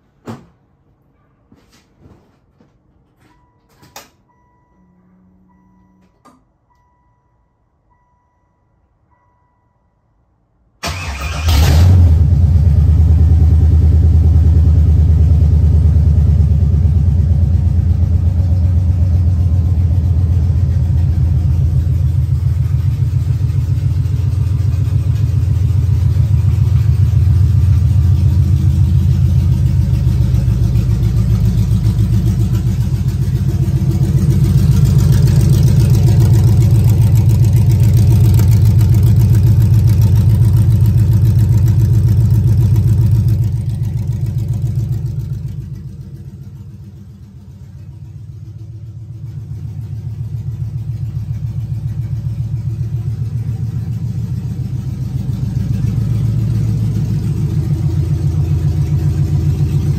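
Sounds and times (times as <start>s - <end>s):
engine cranking: 10.8s - 11.9s
loud engine idling: 12.3s - 59.9s.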